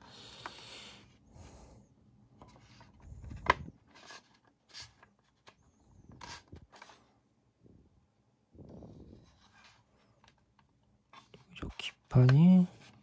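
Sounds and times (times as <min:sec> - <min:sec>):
plastic rubbing and scraping: 0:02.4 - 0:07.1.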